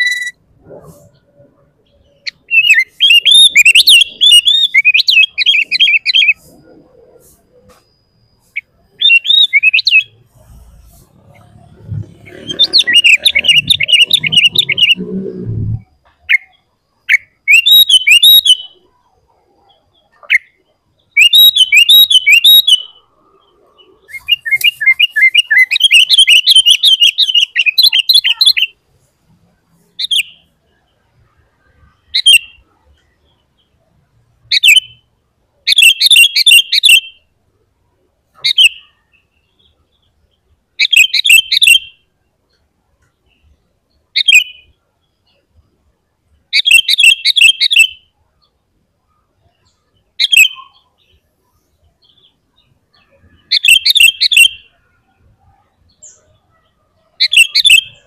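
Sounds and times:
bulbul singing bubbly chatter: 7.9s - 18.8s.

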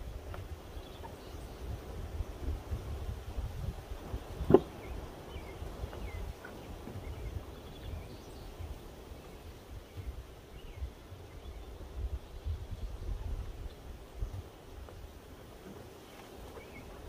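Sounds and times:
wind buffeting the microphone: 0.0s - 17.0s
faint bird chirps: 16.0s - 17.0s.

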